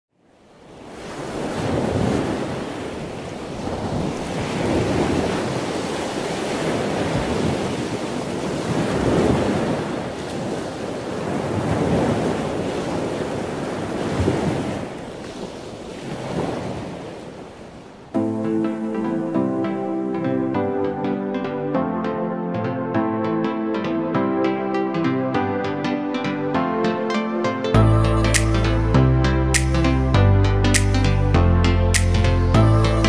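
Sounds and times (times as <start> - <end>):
ocean waves washing: 0.3 - 33.0
music: 18.2 - 33.0.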